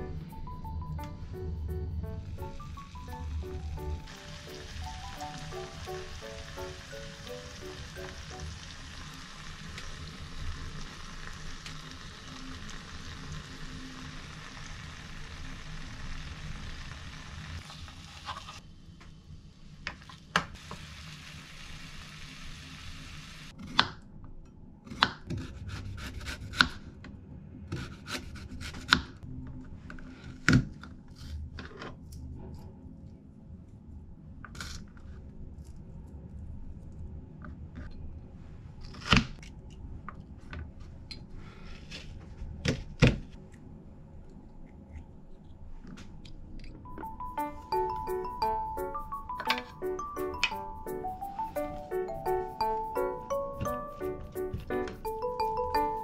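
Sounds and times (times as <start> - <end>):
frying sizzle in a pan: 2.6 - 18.6, 20.0 - 23.6.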